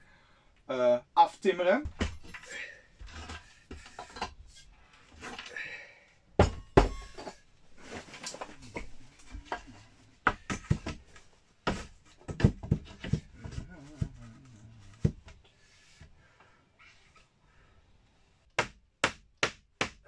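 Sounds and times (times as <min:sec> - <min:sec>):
sharp knocks on wood: 0:18.6 - 0:20.0.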